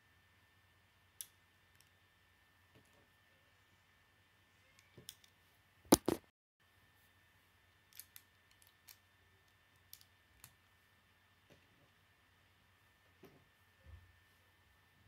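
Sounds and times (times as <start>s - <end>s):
plastic pieces clicking together: 7.9s - 10.6s.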